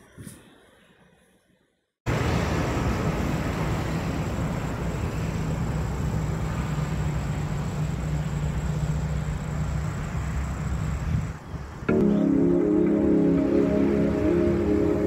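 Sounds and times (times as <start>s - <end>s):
wind noise on microphone: 10.8s - 11.8s.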